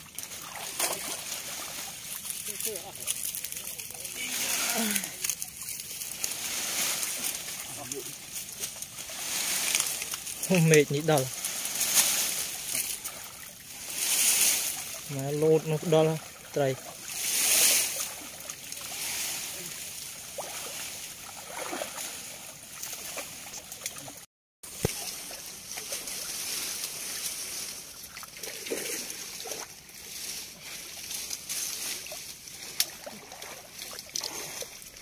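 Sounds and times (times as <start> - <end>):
muddy water splashing and sloshing: 0.0 - 35.0.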